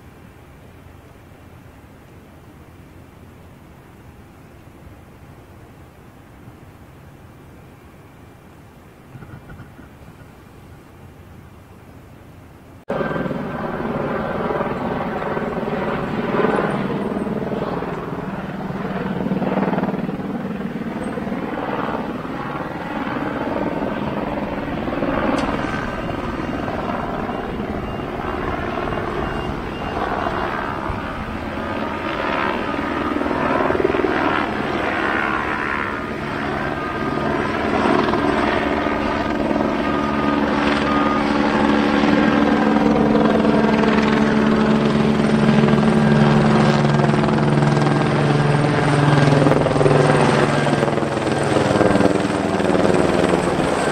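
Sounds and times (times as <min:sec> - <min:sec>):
aircraft engines droning: 0:00.0 - 0:53.9.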